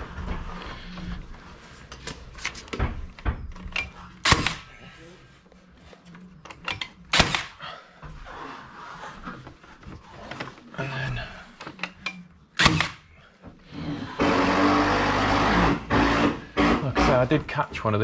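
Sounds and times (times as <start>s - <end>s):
cable stapler shots: 3.8s - 4.7s, 6.7s - 7.6s, 12.6s - 13.0s.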